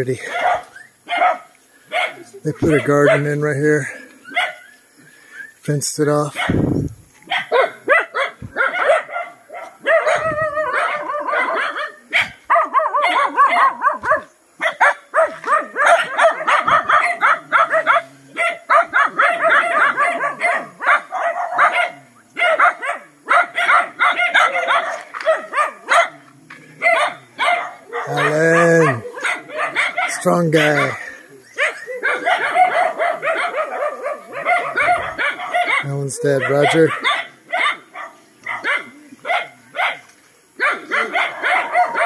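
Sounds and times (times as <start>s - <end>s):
dogs barking and yipping: 0.0s - 4.9s, 6.2s - 42.0s
dogs whining: 7.3s - 37.2s, 40.6s - 42.0s.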